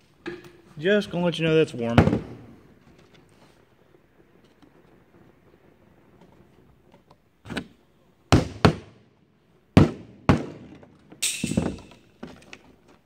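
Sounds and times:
hammer driving tacks into wood: 8.3s - 9.0s, 9.8s - 12.3s.

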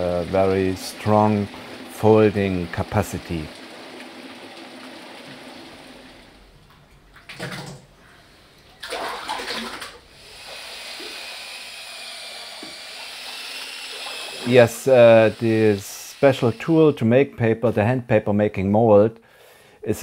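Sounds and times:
water splashing: 8.8s - 10.0s, 12.6s - 16.8s.

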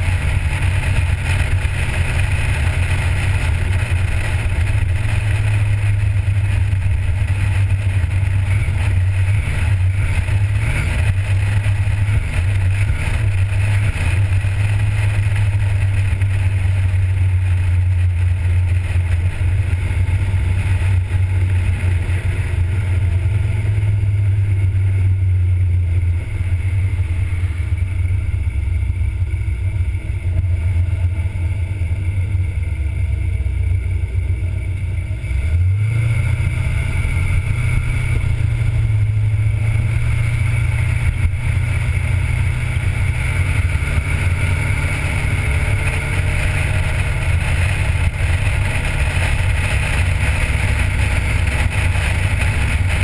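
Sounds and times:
car engine droning: 0.0s - 53.0s.

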